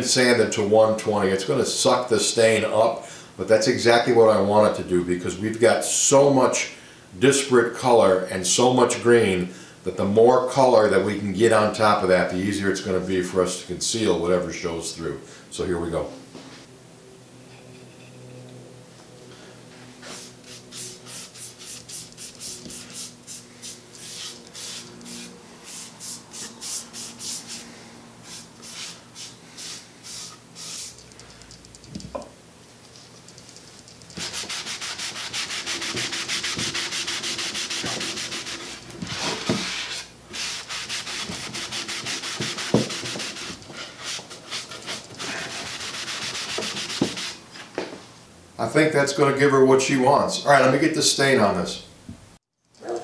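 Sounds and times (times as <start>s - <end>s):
cloth rag rubbing wood: 19.8s - 31.0s, 34.2s - 47.4s.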